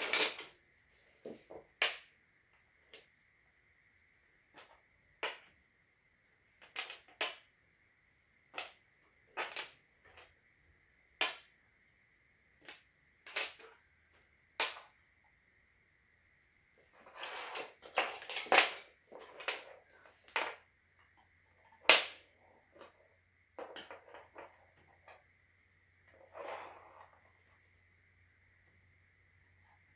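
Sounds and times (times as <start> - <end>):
clatter of wooden pieces: 0.0 - 0.5, 17.0 - 20.6
wooden track pieces knocking: 4.5 - 5.6, 6.5 - 7.5, 8.5 - 10.3, 11.2 - 11.6, 12.6 - 13.8, 14.6 - 15.0, 17.0 - 20.7, 21.6 - 25.3.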